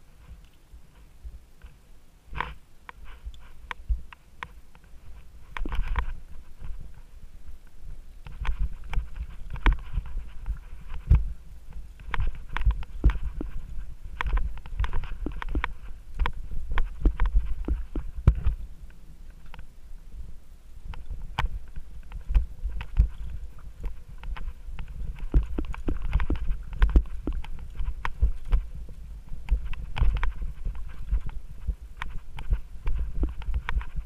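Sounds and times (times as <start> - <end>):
bike knocks and rattles: 8.3 - 18.6, 20.9 - 34.0.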